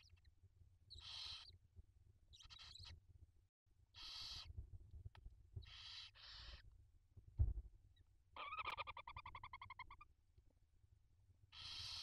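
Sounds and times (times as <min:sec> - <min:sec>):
owl twittering call: 0:00.9 - 0:01.6, 0:02.3 - 0:02.9, 0:04.0 - 0:04.5, 0:05.6 - 0:06.6, 0:08.4 - 0:10.1, 0:11.5 - 0:12.0
owl hissing calls: 0:01.0 - 0:01.5, 0:04.0 - 0:04.5, 0:05.7 - 0:06.6, 0:11.5 - 0:12.0.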